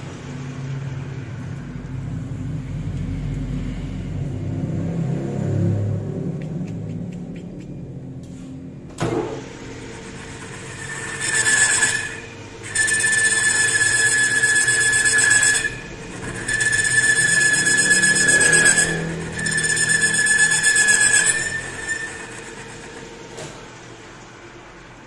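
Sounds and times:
lathe cutter squealing: 9.2s - 24.1s.

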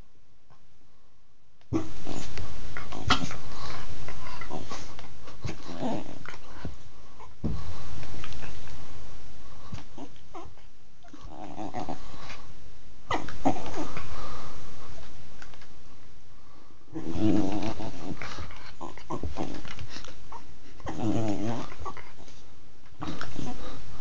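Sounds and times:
dog growling in play: 1.7s - 7.4s, 9.8s - 12.4s, 13.1s - 14.5s, 16.9s - 22.4s, 23.0s - 23.8s.

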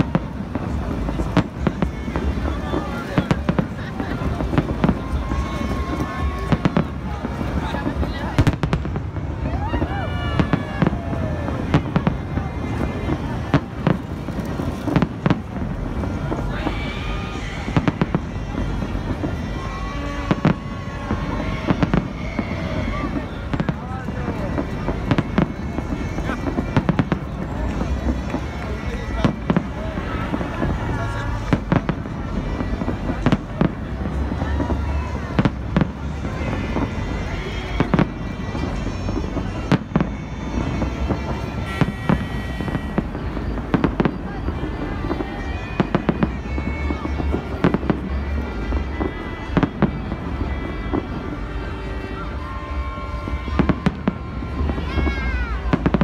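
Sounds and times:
crowd noise: 0.0s - 56.0s
fireworks bangs: 0.0s - 56.0s
fireworks crackle: 0.0s - 56.0s
street noise: 0.0s - 56.0s.

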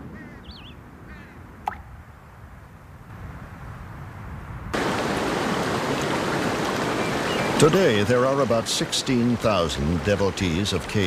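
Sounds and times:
rush of falling water: 4.8s - 11.0s.

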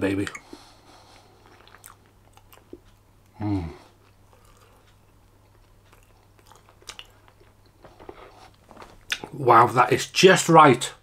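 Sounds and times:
man chewing: 0.4s - 9.4s
wet mouth clicks: 1.4s - 3.4s, 4.0s - 7.6s
man humming: 3.3s - 3.9s.

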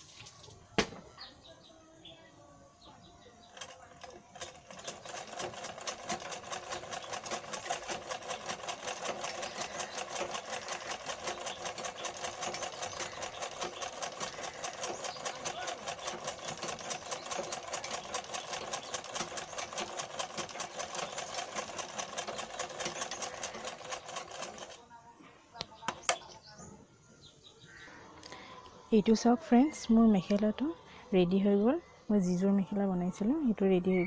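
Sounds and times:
sewing machine needle clattering: 3.4s - 24.8s.

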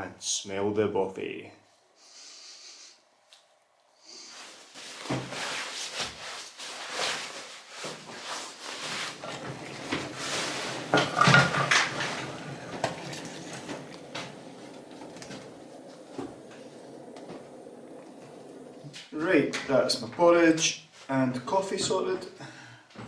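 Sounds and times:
metal cookware clattering: 9.2s - 15.6s.

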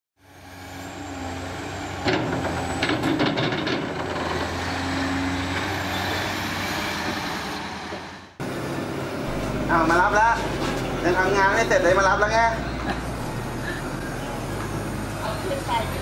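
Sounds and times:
steady mechanical rumble: 8.4s - 16.0s.

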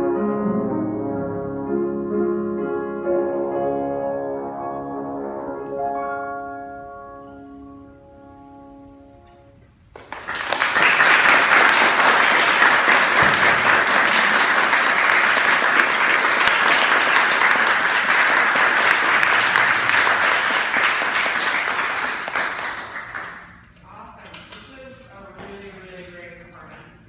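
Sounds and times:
audience applause: 9.9s - 23.6s.

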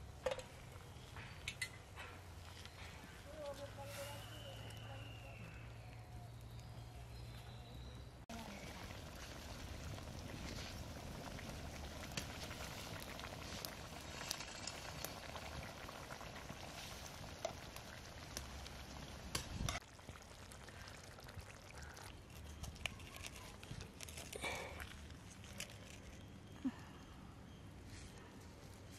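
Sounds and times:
curry bubbling in metal pot: 4.6s - 26.6s
wood fire crackling: 8.3s - 27.1s.

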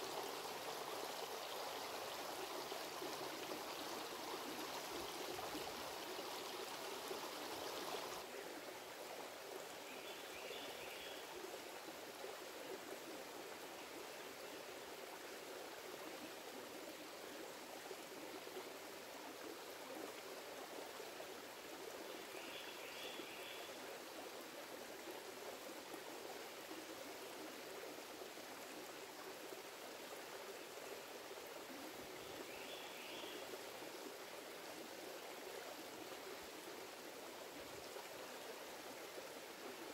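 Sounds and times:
creek running over rocks: 0.0s - 39.9s.

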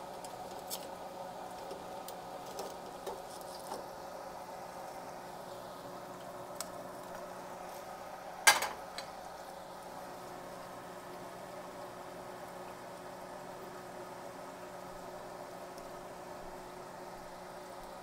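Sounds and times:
hot oil bubbling in fryer: 0.0s - 18.0s.

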